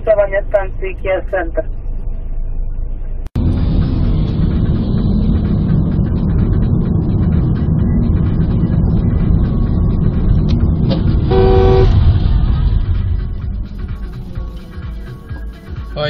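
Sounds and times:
car engine and road noise: 0.0s - 16.0s.

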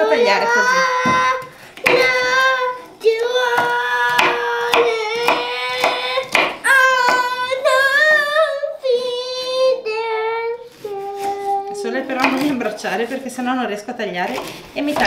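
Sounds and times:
girl singing high held notes: 0.0s - 11.8s
knife chopping on cutting board: 1.8s - 2.3s, 3.5s - 7.4s, 12.2s - 12.6s.

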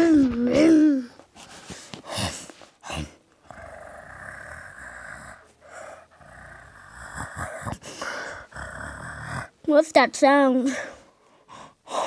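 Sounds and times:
person imitating motor noise: 6.2s - 7.8s, 8.4s - 9.6s.

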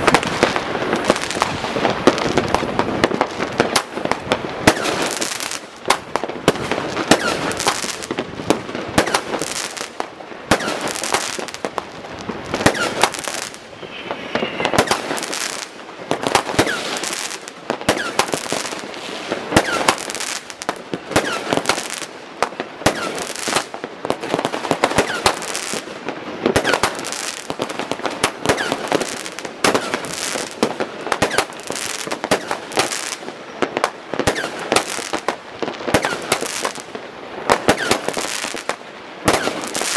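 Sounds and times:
fireworks bangs and crackling: 0.0s - 39.9s
firework whistle: 7.1s - 7.7s, 12.6s - 15.7s, 16.5s - 17.3s, 17.9s - 18.4s, 19.6s - 20.0s, 25.0s - 25.8s, 28.5s - 30.4s, 31.2s - 31.6s, 37.7s - 38.5s.

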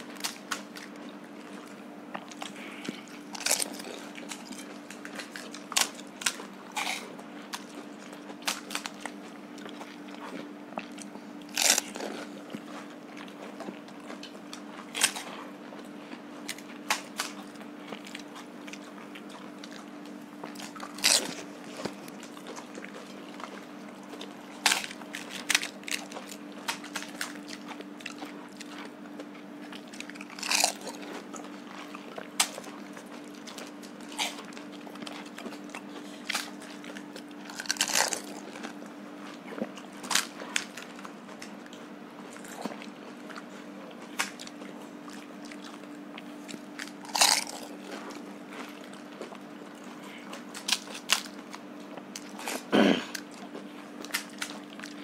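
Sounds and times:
steady low hum: 0.0s - 55.0s
teeth crunching: 0.0s - 55.0s
crisp shells cracking: 2.3s - 7.7s, 8.3s - 9.2s, 11.5s - 12.4s, 20.5s - 23.5s, 24.2s - 28.7s, 30.0s - 31.4s, 32.3s - 38.8s, 40.0s - 41.6s, 46.5s - 47.9s, 50.4s - 51.6s, 54.0s - 55.0s.

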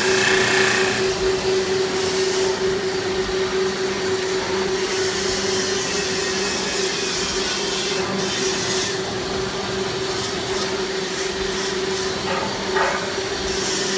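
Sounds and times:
lathe motor hum: 0.0s - 4.8s.

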